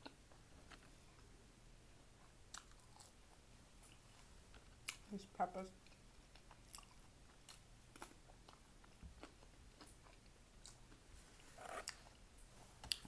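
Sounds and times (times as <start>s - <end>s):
chewing crunches: 2.5s - 3.2s, 5.8s - 11.0s.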